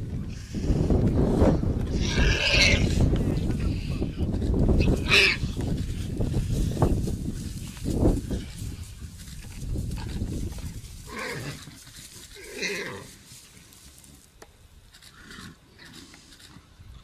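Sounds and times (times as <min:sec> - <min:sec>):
warthog squealing: 0:01.9 - 0:03.0, 0:04.8 - 0:05.5.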